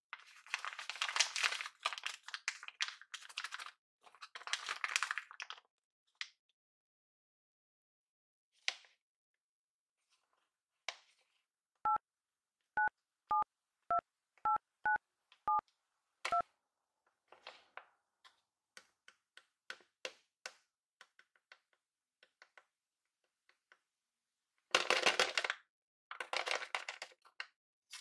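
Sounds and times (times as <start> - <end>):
phone keypad dialing beeps: 12.8 - 15.6.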